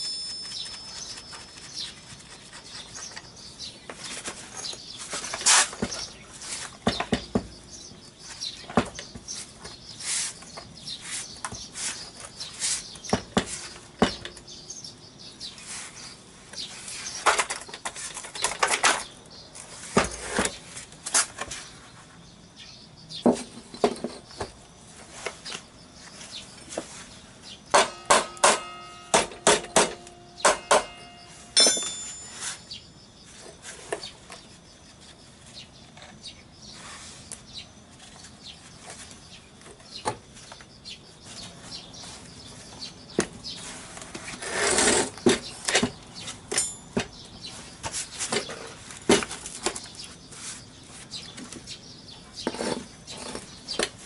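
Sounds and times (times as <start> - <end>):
ringing metal strikes: 0.0 - 1.5, 27.7 - 32.9, 46.5 - 47.2
tools knocking and clinking: 23.3 - 24.6, 27.7 - 32.6, 45.7 - 47.3.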